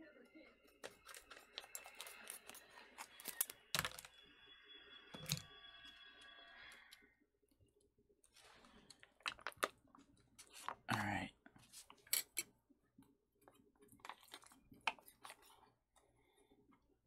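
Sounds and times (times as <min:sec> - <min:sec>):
foil crinkling: 0:00.8 - 0:04.1
scissors snipping foil pouch: 0:00.8 - 0:04.1.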